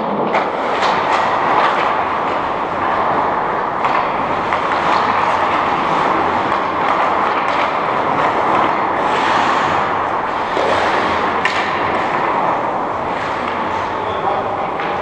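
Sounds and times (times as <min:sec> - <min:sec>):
ice rink rushing noise: 0:00.0 - 0:15.0.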